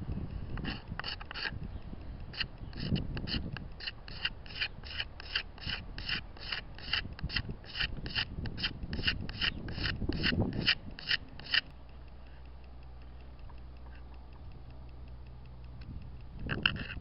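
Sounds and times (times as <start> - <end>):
sandpaper rubbing on hard wood: 2.8 - 11.7.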